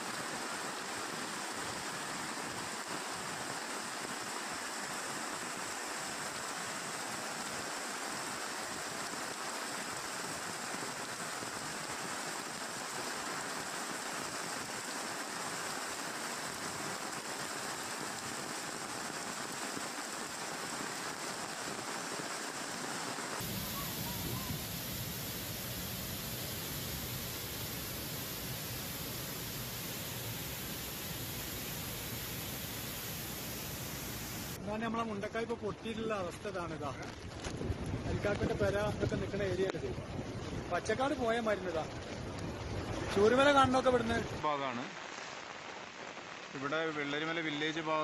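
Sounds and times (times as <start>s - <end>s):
runoff water running: 0.0s - 34.6s
heavy rain pouring: 0.0s - 35.4s, 37.6s - 48.0s
flood torrent over waterfall: 0.0s - 37.1s, 37.9s - 48.0s.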